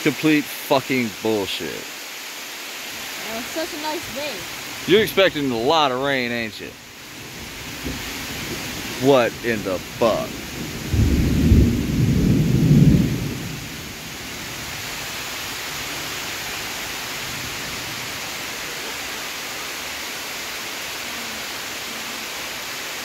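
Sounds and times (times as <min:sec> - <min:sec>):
rain hissing on river and leaves: 0:00.0 - 0:23.0
thunder rumbling: 0:07.2 - 0:14.8.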